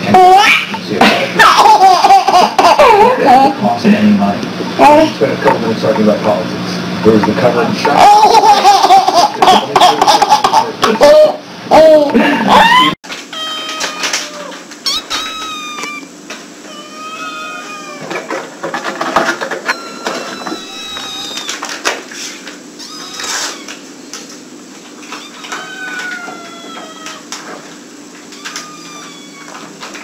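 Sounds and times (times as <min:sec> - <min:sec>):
kittens mewing: 0:11.8 - 0:18.5, 0:19.4 - 0:21.9, 0:22.7 - 0:30.0.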